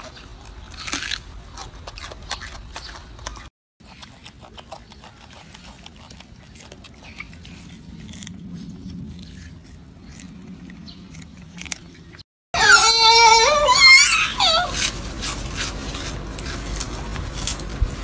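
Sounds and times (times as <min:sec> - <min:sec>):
monkey chewing carrot crunches: 0:00.0 - 0:12.2, 0:12.8 - 0:18.0.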